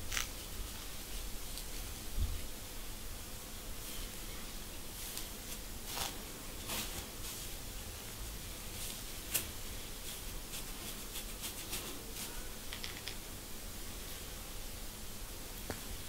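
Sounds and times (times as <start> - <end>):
steady hiss: 0.0 - 16.0
fingernails scratching a dry scalp: 5.1 - 7.1, 10.1 - 12.4
small crackling clicks: 12.7 - 13.2.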